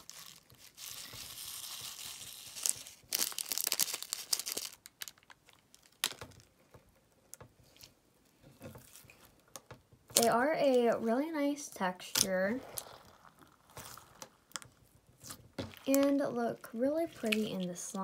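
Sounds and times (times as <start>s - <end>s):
sprinkles pouring crackle: 0.0s - 5.9s, 12.6s - 14.4s
plastic packet crinkling: 0.0s - 6.5s.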